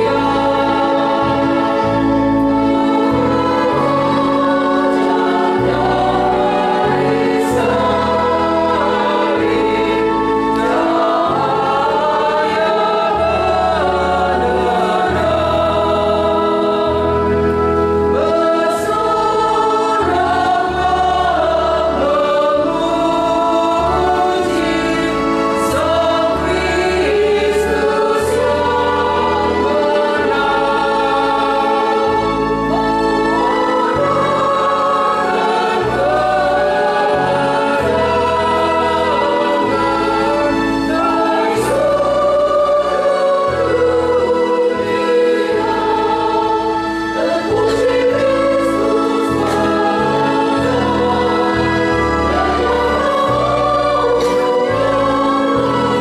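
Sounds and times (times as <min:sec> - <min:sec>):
women's choir singing a hymn: 0:00.0 - 0:56.0.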